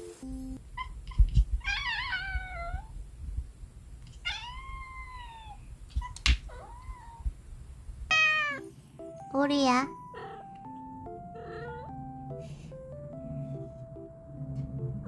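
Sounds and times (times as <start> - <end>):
cat meowing: 0.8 - 2.9, 4.2 - 7.3, 8.1 - 8.7, 10.1 - 10.8, 11.4 - 11.9
cat chirps: 8.1 - 8.7.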